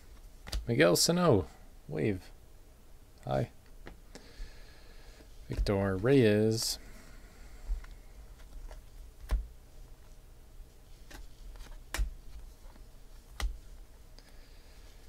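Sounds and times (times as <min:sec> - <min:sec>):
cards being flipped clicking: 0:11.0 - 0:13.6.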